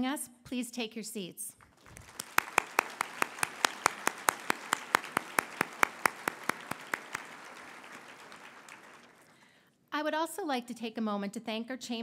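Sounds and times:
audience applauding: 0:01.6 - 0:09.5
close hand claps: 0:01.6 - 0:09.5.

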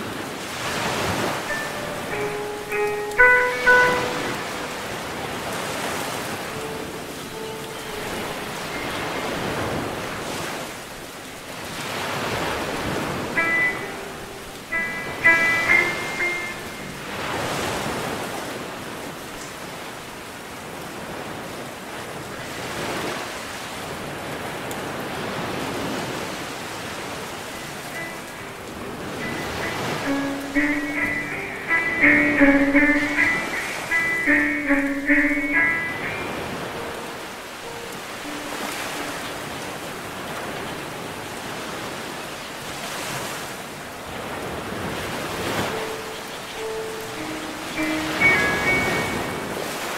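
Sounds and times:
ocean waves washing in: 0:00.0 - 0:49.9
faint held musical notes: 0:00.6 - 0:10.2, 0:13.0 - 0:18.3, 0:27.3 - 0:39.9, 0:45.6 - 0:49.8.

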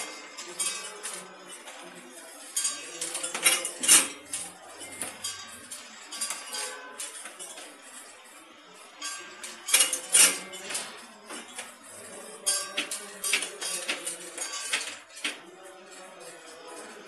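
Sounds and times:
tablets clattering through metal chute: 0:02.6 - 0:08.0, 0:09.0 - 0:17.0.

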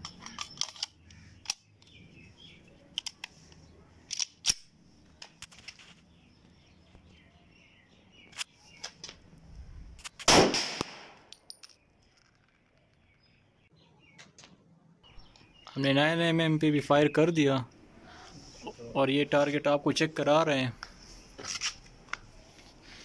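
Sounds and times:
pistol handling clicks: 0:00.0 - 0:02.0, 0:04.1 - 0:04.7
pistol shot echoing: 0:10.3 - 0:11.3.

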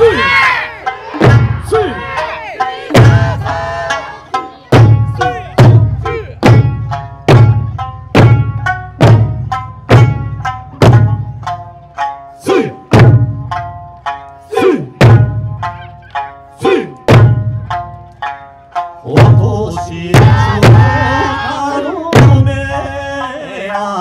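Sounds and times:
person shouting: 0:00.0 - 0:00.8, 0:01.5 - 0:04.1, 0:05.2 - 0:06.4, 0:12.4 - 0:12.9, 0:14.4 - 0:15.0, 0:16.6 - 0:17.0, 0:20.3 - 0:21.9
folk music: 0:00.0 - 0:24.0
deep booming drum hits: 0:01.2 - 0:01.7, 0:04.8 - 0:11.3, 0:13.0 - 0:13.5, 0:15.0 - 0:15.6, 0:22.1 - 0:22.7.

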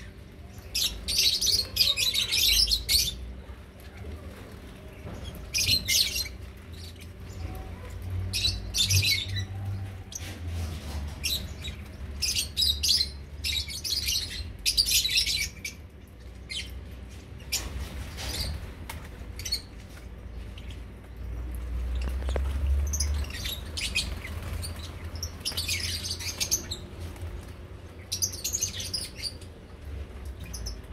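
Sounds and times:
lovebirds chattering: 0:00.0 - 0:10.4, 0:11.0 - 0:30.9.

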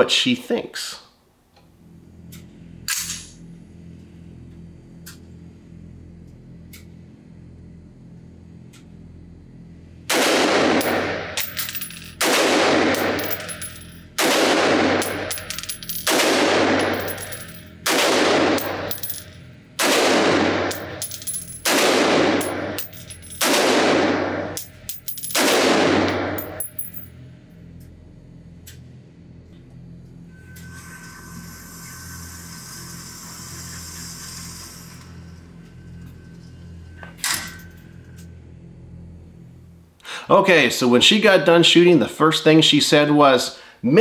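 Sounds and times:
low steady hum: 0:00.0 - 0:44.0
gunshots echoing indoors: 0:10.1 - 0:11.2, 0:12.2 - 0:13.4, 0:14.2 - 0:15.3, 0:16.0 - 0:19.0, 0:19.8 - 0:20.8, 0:21.6 - 0:22.8, 0:23.4 - 0:24.6, 0:25.3 - 0:26.6.

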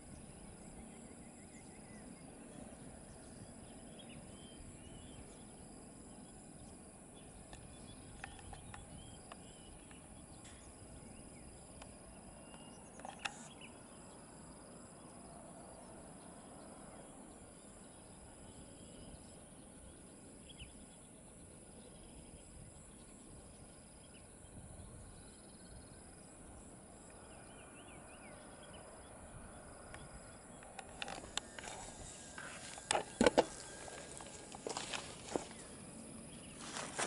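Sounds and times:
insect trilling: 0:29.5 - 0:37.0.

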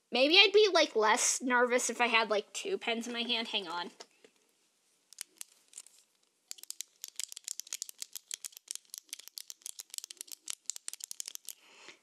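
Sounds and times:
pens tapping on hard surface: 0:06.5 - 0:11.6.

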